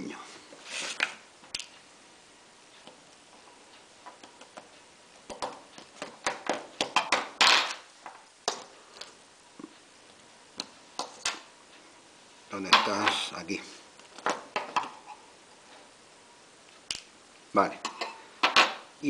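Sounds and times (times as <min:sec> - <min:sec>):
scraping rustle: 0:00.6 - 0:01.1.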